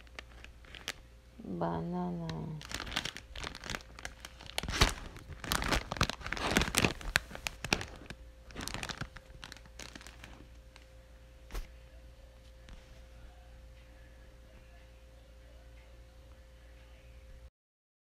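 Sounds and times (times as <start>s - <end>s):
plastic wrapping crinkling: 0.0s - 1.1s, 2.1s - 11.7s.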